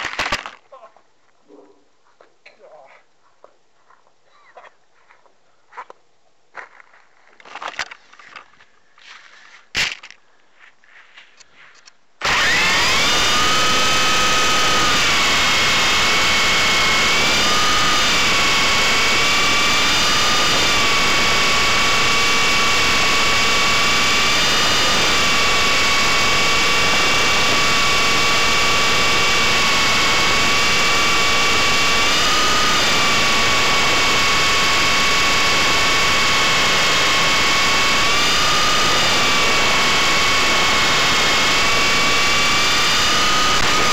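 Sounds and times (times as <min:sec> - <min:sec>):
rc helicopter motor whine: 0:12.2 - 0:43.9.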